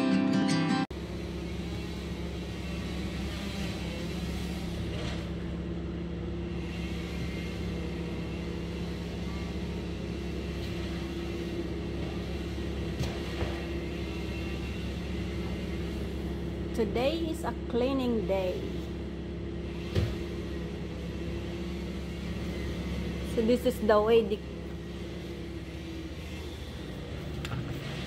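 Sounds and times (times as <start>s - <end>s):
acoustic guitar music: 0.0s - 0.9s
wood chipper engine running: 0.9s - 28.0s.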